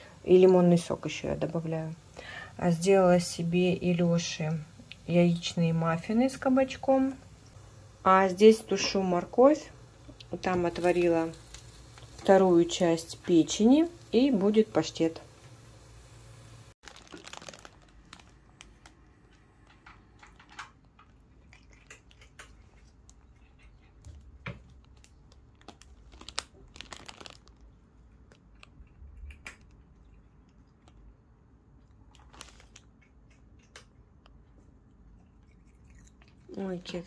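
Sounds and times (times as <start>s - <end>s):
cat nibbling leaves: 16.9s - 37.0s.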